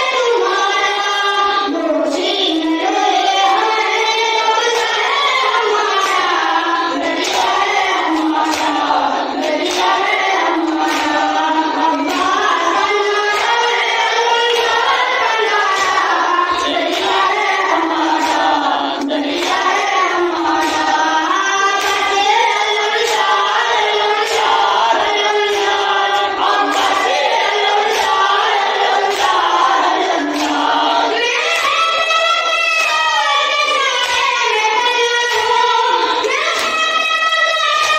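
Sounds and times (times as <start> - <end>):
boy chanting: 0.0 - 37.9
men's voices chanting: 4.8 - 31.2.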